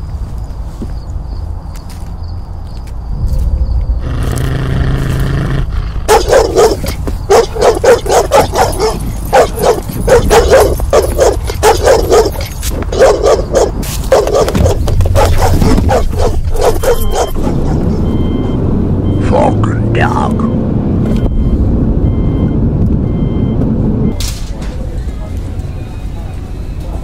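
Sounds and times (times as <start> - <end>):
low steady rumble: 3.1 - 12.1
dog barking: 6.0 - 18.1.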